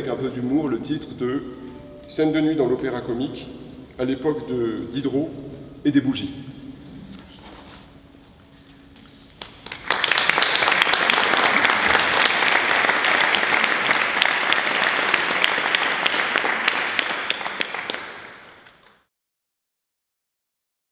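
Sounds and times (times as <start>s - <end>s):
audience applauding: 9.3s - 19.1s.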